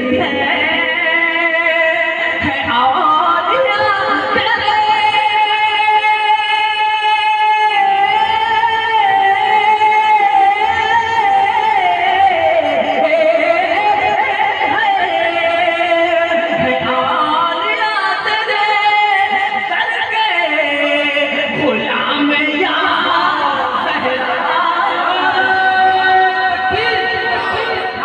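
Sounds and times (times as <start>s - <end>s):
man singing long high note: 19.1s - 28.0s.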